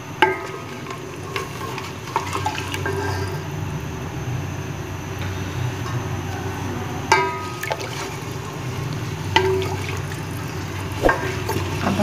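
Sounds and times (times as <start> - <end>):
broth swishing in pot: 11.0 - 11.8.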